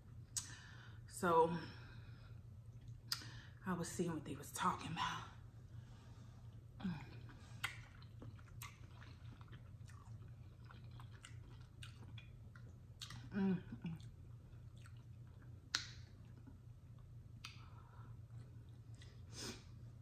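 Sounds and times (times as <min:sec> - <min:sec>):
wet chewing mouth sounds: 0:06.5 - 0:19.3
small mouth clicks: 0:07.2 - 0:12.3, 0:15.7 - 0:16.1.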